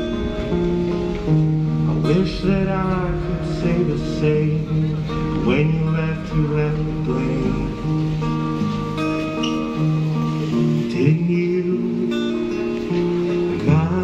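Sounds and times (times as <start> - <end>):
acoustic guitar strumming: 0.0 - 14.0
man singing: 1.8 - 8.2, 10.4 - 14.0.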